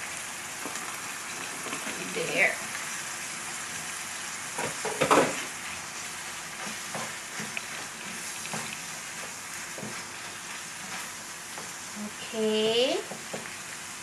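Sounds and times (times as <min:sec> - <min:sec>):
meat sizzling in a frying pan: 0:00.0 - 0:14.0
wooden spatula scraping a pan: 0:04.6 - 0:12.0.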